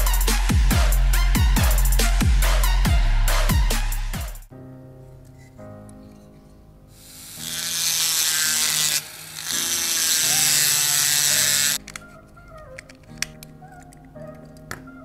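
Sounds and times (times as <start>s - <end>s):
rotary tool grinding metal: 7.0s - 11.8s.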